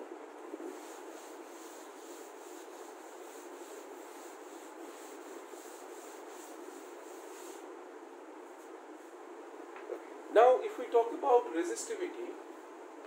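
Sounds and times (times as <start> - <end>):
duster rubbing on chalkboard: 0.6 - 7.7.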